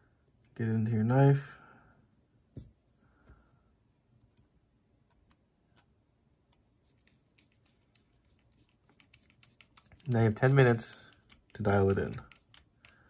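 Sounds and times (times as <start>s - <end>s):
faint small clicks and ticks: 6.5s - 13.0s.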